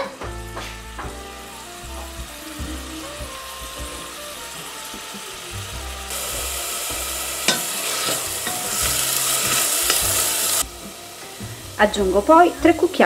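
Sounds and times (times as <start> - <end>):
vegetables sizzling in oil: 0.0 - 13.0
wooden spatula stirring: 7.5 - 10.9.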